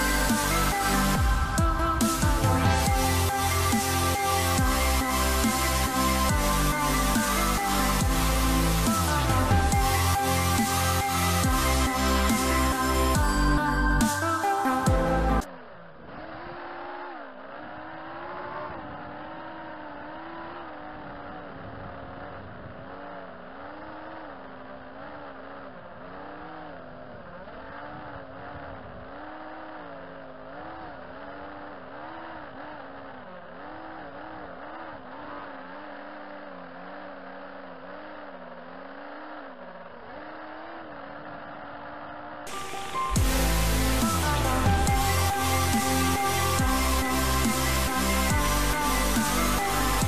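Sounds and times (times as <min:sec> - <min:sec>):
quadcopter motors whining: 0:00.0 - 0:26.6, 0:42.5 - 0:50.0.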